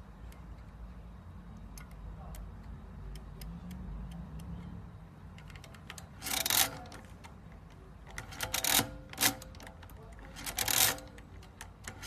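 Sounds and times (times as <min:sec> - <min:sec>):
crank mechanical clatter: 0:04.6 - 0:12.0.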